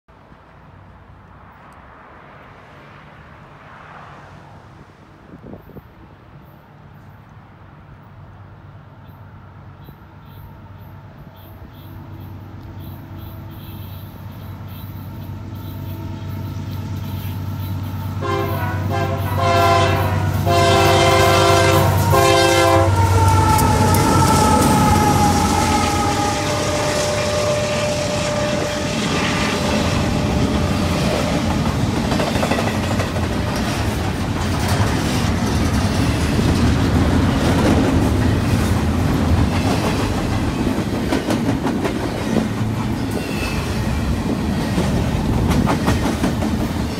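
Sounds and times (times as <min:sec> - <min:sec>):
diesel locomotive engines: 0:00.1 - 0:46.9
freight cars rumbling: 0:00.2 - 0:46.9
locomotive whine: 0:10.0 - 0:46.9
train horn blasts: 0:15.5 - 0:31.7.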